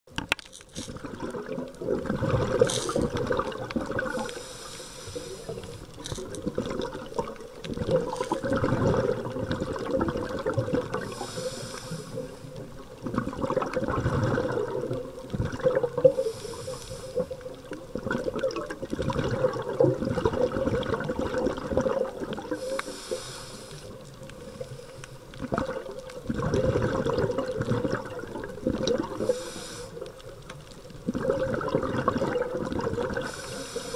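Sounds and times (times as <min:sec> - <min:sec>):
bubbling exhale: 0:00.8 - 0:30.4, 0:31.0 - 0:33.9
diver breathing through regulator: 0:04.0 - 0:06.0, 0:11.0 - 0:12.6, 0:16.1 - 0:17.5, 0:22.5 - 0:25.3, 0:29.1 - 0:30.2, 0:33.2 - 0:33.9.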